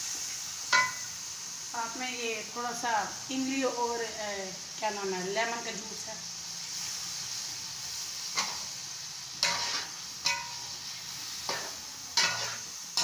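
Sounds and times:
food sizzling in a pot: 0:00.0 - 0:13.0
metal spoon scraping a pot: 0:11.5 - 0:12.6.

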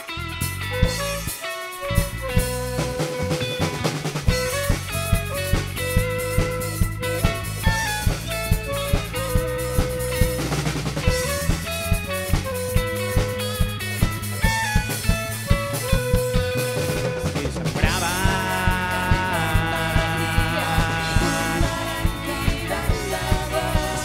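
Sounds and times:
lead melody with bending pitch: 0:00.0 - 0:17.2, 0:17.8 - 0:24.0
live rock band playing: 0:00.0 - 0:24.0.

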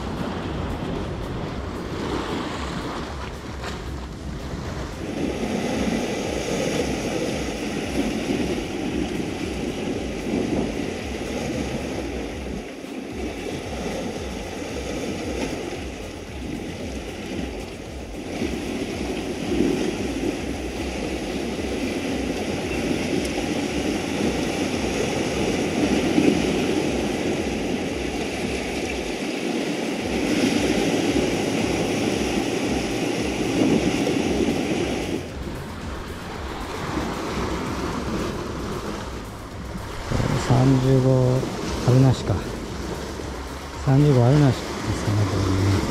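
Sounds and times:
surf breaking on rocks: 0:00.0 - 0:45.9
wind buffeting microphone: 0:00.0 - 0:45.9.

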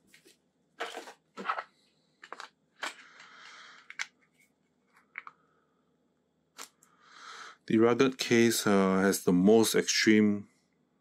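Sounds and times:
crinkling rustles: 0:00.0 - 0:05.3.

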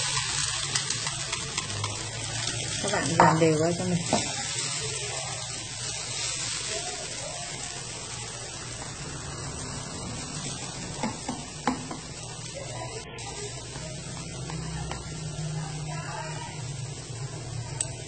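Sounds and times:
noodles sizzling in hot oil: 0:00.0 - 0:18.0
chopsticks knocking against pan: 0:11.0 - 0:12.1.

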